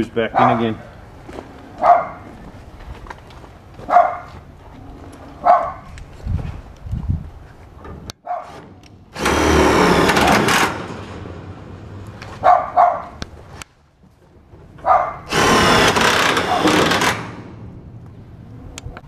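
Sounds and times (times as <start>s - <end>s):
dog barking: 0.4s - 0.6s, 1.8s - 2.2s, 3.9s - 4.4s, 5.4s - 5.9s, 8.3s - 8.5s, 12.4s - 13.2s, 14.8s - 15.3s
cordless drill driving screws: 9.2s - 10.9s, 15.3s - 17.5s.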